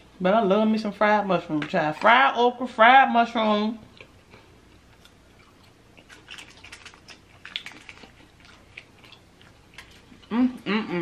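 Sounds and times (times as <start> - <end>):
chewing fried food: 3.8 - 11.0.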